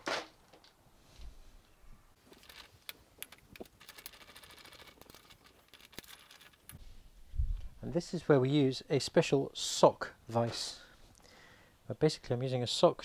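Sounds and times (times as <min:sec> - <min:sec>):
metal parts and tools clicking: 0:02.3 - 0:06.8.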